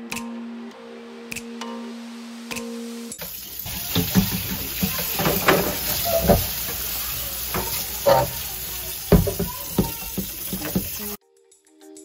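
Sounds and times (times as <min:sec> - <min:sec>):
tap water running into sink: 0:03.2 - 0:11.2
glass shelf being scrubbed: 0:03.6 - 0:11.2
shelf knocking against sink: 0:03.7 - 0:11.2.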